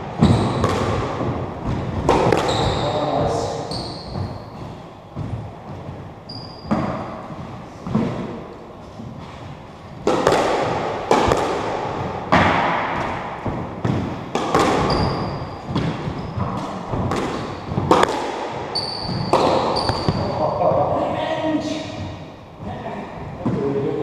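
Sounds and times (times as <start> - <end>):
squash ball cracking off walls: 0.0 - 4.4, 10.0 - 20.5
shoe squeaks on wooden floor: 0.2 - 0.6, 2.4 - 5.2, 5.8 - 7.8, 14.8 - 16.7, 18.7 - 20.6.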